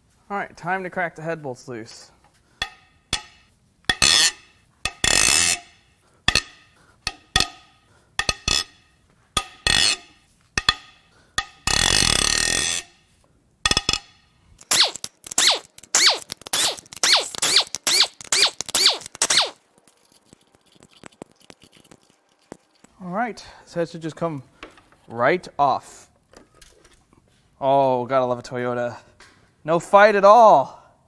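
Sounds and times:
bolts spinning out clicking: 13.7 - 19.6
steady rasp: 14.6 - 19.6.

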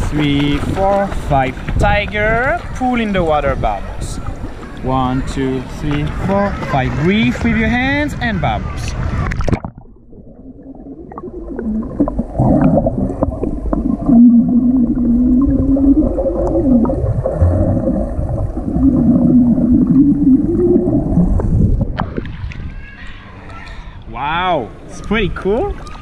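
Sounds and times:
underwater swimming strokes: 0.0 - 22.8
bubbles gurgling: 9.0 - 22.7
low wavering hum: 9.0 - 24.1.

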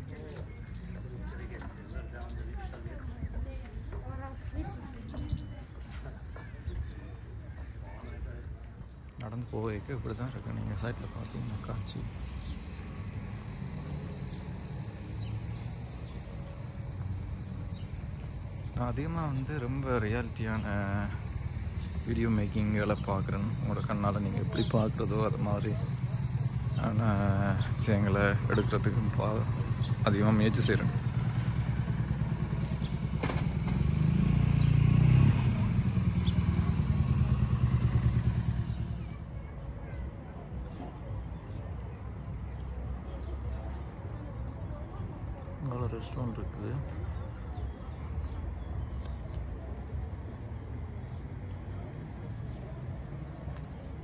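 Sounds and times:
low outdoor rumble: 8.7 - 39.5
motorcycle engine idling: 9.7 - 39.4.

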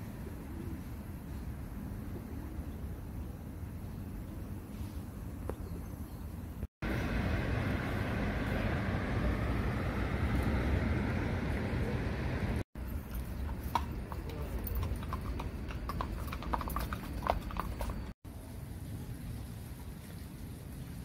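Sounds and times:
low street rumble: 0.0 - 21.0
steady outdoor hiss: 0.0 - 21.0
horse hooves clip-clopping on pavement: 12.8 - 18.2.

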